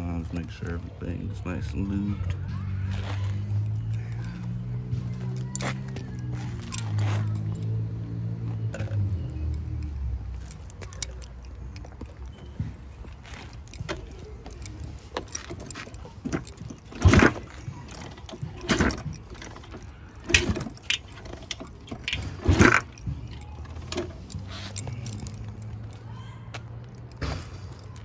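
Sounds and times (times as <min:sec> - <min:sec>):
motorcycle kick-starter clattering: 0:10.3 - 0:28.0.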